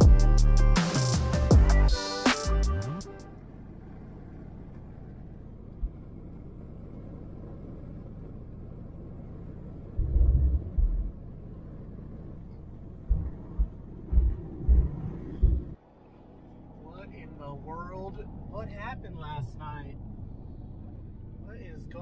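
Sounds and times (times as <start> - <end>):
truck driving on snowy road: 0.0 - 22.0
low thumps: 9.9 - 11.2, 13.0 - 15.8.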